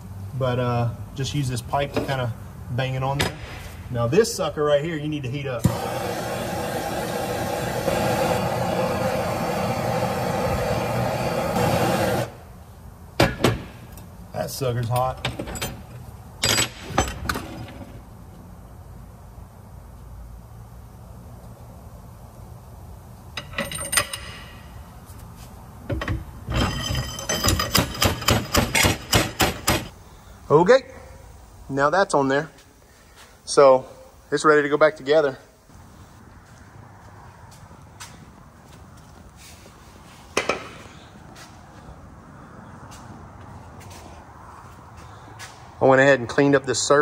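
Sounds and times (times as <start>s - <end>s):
gas torch hissing roar: 5.6s - 12.5s.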